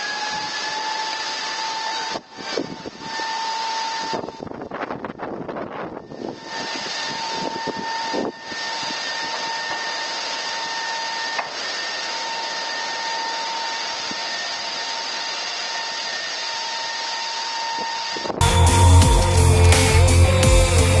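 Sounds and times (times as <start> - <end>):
strong wind on microphone: 2.2 - 9.8.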